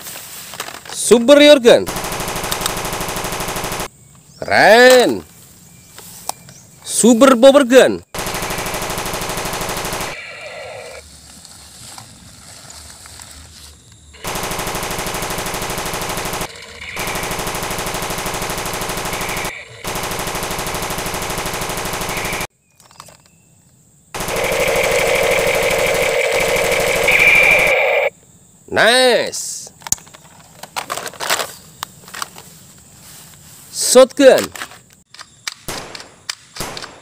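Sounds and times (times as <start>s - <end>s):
electronic machine-gun bursts: 1.9s - 3.9s, 8.2s - 11.0s, 14.2s - 22.5s, 24.2s - 28.1s.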